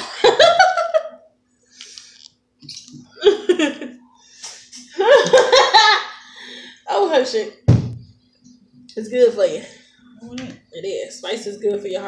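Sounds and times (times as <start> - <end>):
women laughing: 0.0 - 1.3, 3.2 - 4.0, 4.9 - 6.2
faint steady hum: 0.0 - 12.0.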